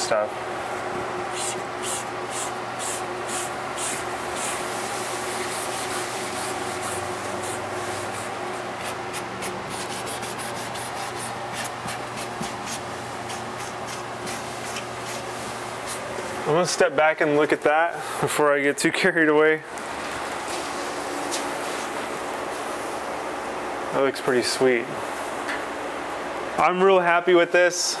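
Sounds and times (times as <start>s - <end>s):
hand sanding painted wood: 1.3s - 16.1s.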